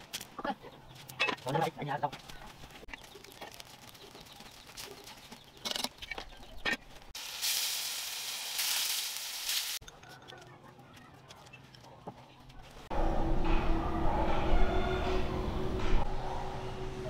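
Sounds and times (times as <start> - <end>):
wood fire crackling and popping: 2.2 - 6.2
tofu sizzling in hot oil: 7.2 - 9.8.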